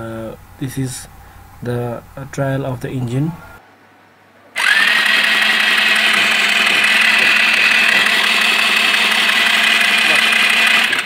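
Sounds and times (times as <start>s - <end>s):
scooter engine running with high whine: 4.6s - 11.0s.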